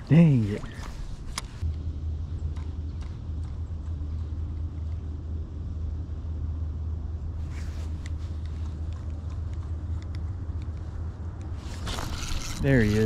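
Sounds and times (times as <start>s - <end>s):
low rumble: 0.7s - 12.9s
brief rustle: 11.6s - 13.0s.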